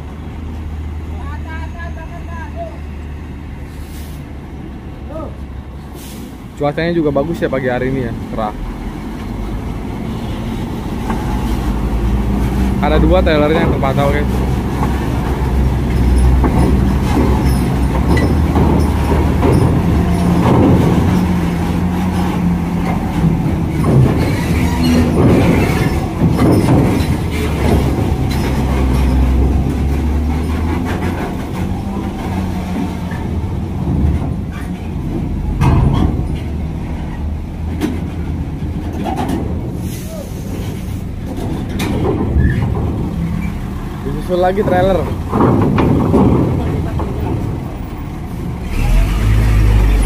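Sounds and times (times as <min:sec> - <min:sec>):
truck diesel engines running: 0:00.0 - 0:50.0
metallic clanks and rattles: 0:12.3 - 0:49.6.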